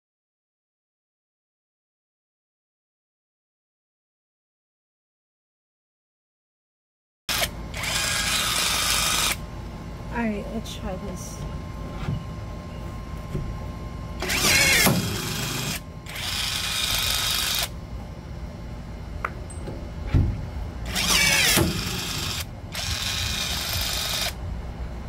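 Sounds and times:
rivet tool motor whining: 0:07.3 - 0:09.4, 0:14.2 - 0:17.7, 0:20.8 - 0:24.4
thump: 0:20.1 - 0:20.4.

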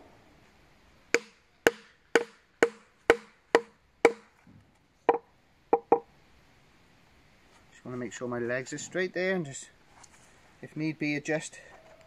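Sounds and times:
mallet knocking wooden peg: 0:01.1 - 0:04.2, 0:05.1 - 0:06.0.

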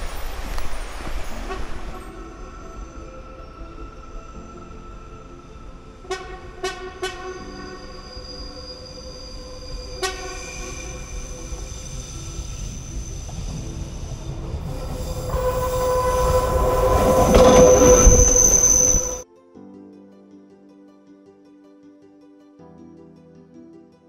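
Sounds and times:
diesel railcar rumble and whine: 0:00.0 - 0:19.2
train horn toot: 0:01.3 - 0:04.2, 0:05.9 - 0:12.2, 0:14.1 - 0:19.2.

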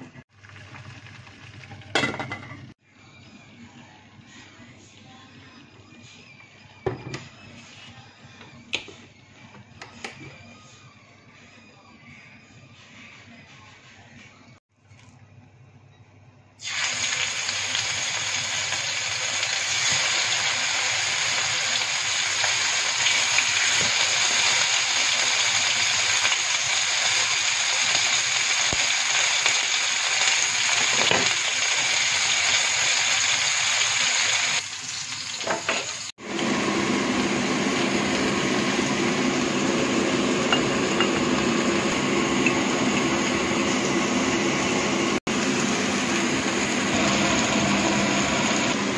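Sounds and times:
steaks sizzling in a frying pan: 0:16.6 - 0:36.1.

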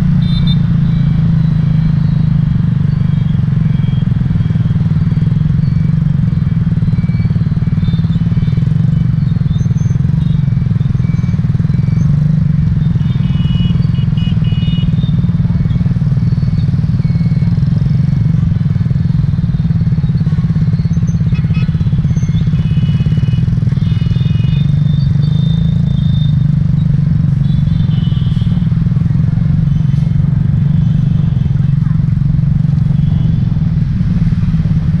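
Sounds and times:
motorbike horn beeps: 0:00.0 - 0:01.3, 0:07.3 - 0:15.9, 0:19.7 - 0:33.8
motorbike engine running: 0:00.0 - 0:35.0
scooter traffic hum: 0:00.0 - 0:35.0.

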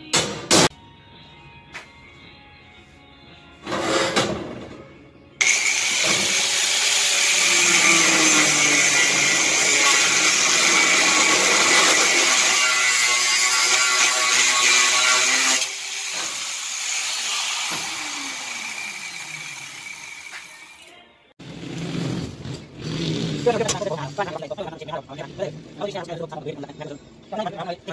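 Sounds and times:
angle grinder grinding steel: 0:05.4 - 0:20.9
grinder motor slowing down: 0:17.3 - 0:20.8.

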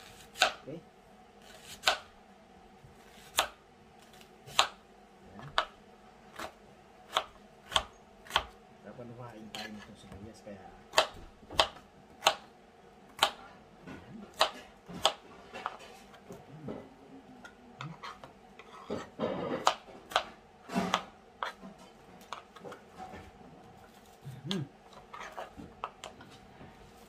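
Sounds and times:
knife chopping on cutting board: 0:00.1 - 0:00.6, 0:01.4 - 0:02.1, 0:03.1 - 0:03.6, 0:04.5 - 0:04.8, 0:06.3 - 0:08.6, 0:09.5 - 0:09.9, 0:10.9 - 0:12.5, 0:13.1 - 0:13.5, 0:14.3 - 0:16.8, 0:17.8 - 0:22.8.

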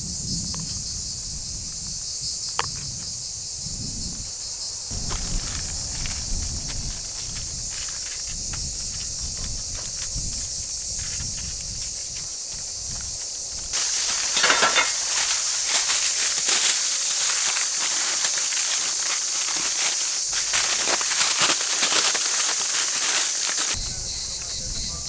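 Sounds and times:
high insect drone: 0:00.0 - 0:25.0
aluminium foil crinkling: 0:13.7 - 0:23.8.

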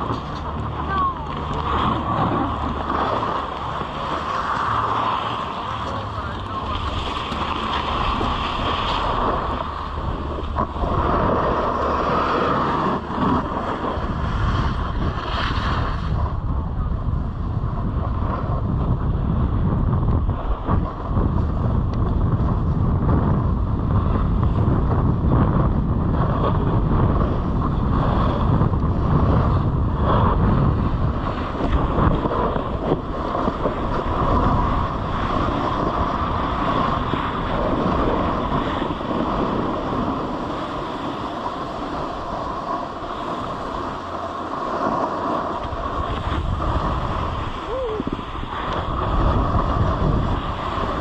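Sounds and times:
snowboard scraping over snow: 0:00.0 - 0:51.0
wind rushing over microphone: 0:00.0 - 0:51.0.

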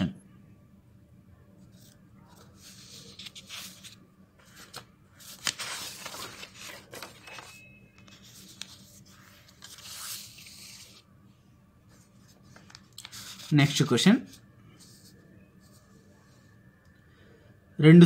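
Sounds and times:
paper pages rustling: 0:01.7 - 0:11.1, 0:11.9 - 0:16.4
sharp paper crackle: 0:02.4 - 0:11.0.

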